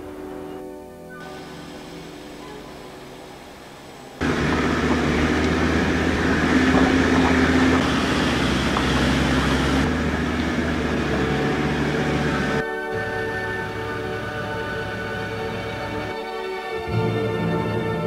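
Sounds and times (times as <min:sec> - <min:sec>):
music: 0:00.0 - 0:05.0, 0:10.0 - 0:18.0
vehicle engine running at low speed: 0:01.2 - 0:12.6
vehicle rumbling over rough dirt track: 0:04.2 - 0:12.6.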